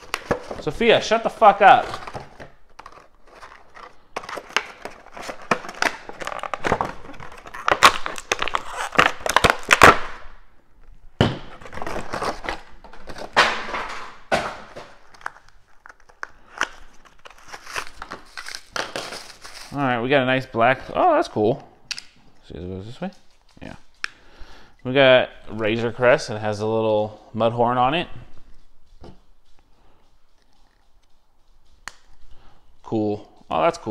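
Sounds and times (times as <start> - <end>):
cardboard and plastic packaging tearing: 0.0 - 10.2, 11.5 - 19.8
clicks and rustles: 28.4 - 32.3.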